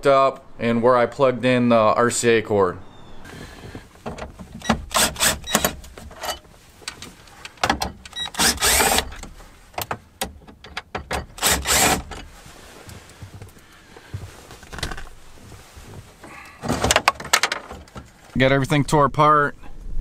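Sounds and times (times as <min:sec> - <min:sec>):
cordless drill running: 0:04.8 - 0:05.7, 0:08.1 - 0:09.2, 0:11.4 - 0:12.1.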